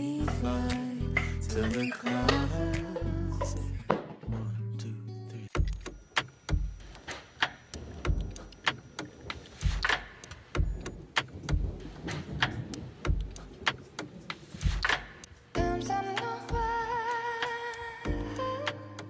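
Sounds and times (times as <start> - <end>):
sharp percussion clicks: 5.6 - 15.4
kick drum thumps: 6.5 - 6.8, 10.6 - 12.0, 13.0 - 13.5, 16.5 - 16.9.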